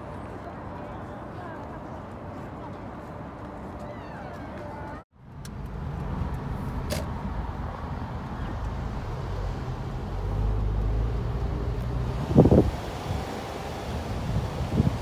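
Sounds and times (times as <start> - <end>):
car engine and road rumble: 5.2 - 15.0.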